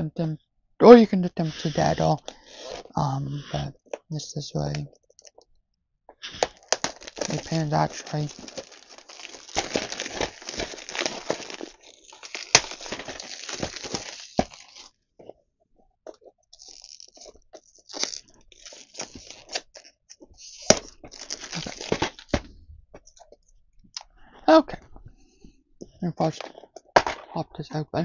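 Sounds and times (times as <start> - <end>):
plastic wrapping crinkling: 6.2 - 15.3, 16.1 - 23.5.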